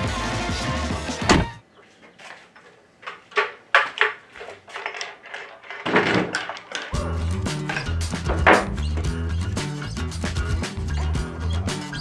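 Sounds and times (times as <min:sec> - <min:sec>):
wooden knocks and clatters: 0:02.2 - 0:07.0, 0:07.6 - 0:09.1.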